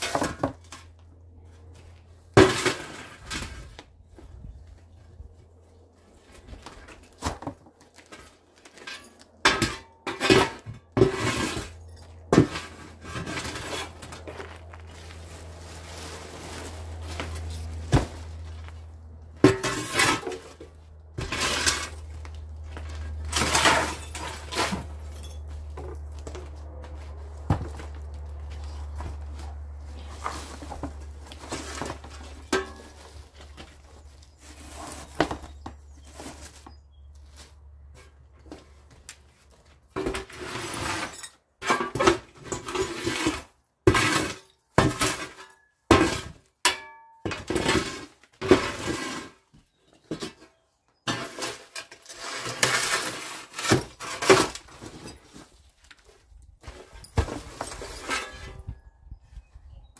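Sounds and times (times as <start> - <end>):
debris clattering and crashing: 6.8 - 28.3, 29.0 - 36.4, 40.0 - 49.4, 51.0 - 55.6, 56.6 - 58.7
clinking and breaking: 46.6 - 47.5.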